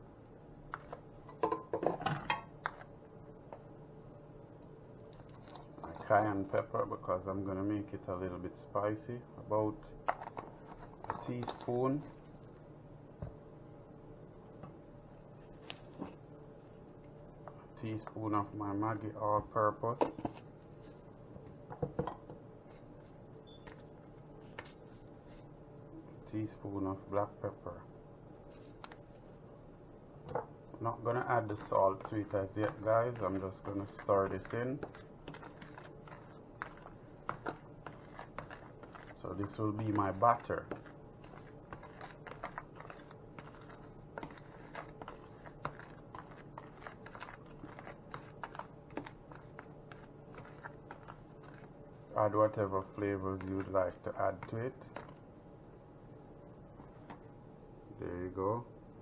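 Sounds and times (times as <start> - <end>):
steady low hum: 0.0 - 59.0
utensil stirring dry flour: 30.8 - 55.6.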